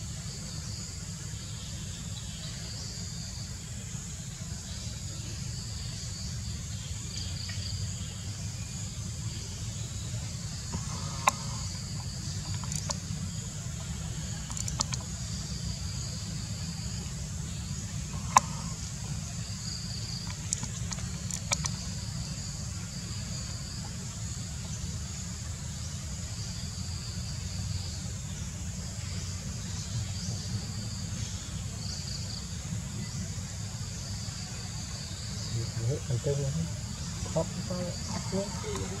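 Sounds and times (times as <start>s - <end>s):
high insect drone: 0.0s - 39.0s
low steady rumble: 0.0s - 39.0s
sharp clicks: 12.4s - 13.0s, 14.4s - 15.1s, 20.2s - 21.8s.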